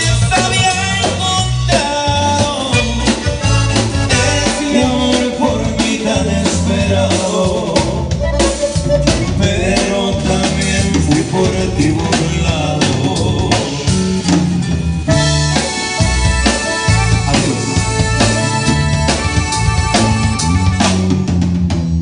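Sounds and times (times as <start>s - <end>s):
button accordion melody: 0.0s - 21.4s
acoustic guitar: 0.0s - 21.6s
deep bass line: 0.0s - 22.0s
drum kit beat: 0.0s - 22.0s
person singing: 4.1s - 14.0s, 16.8s - 19.3s.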